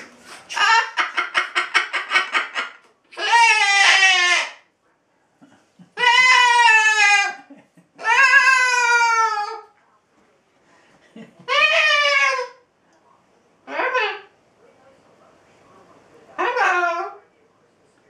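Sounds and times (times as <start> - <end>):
cockatoo squawking and crying: 0.0 - 4.7, 5.9 - 9.7, 11.4 - 12.7, 13.6 - 14.4, 16.4 - 17.2.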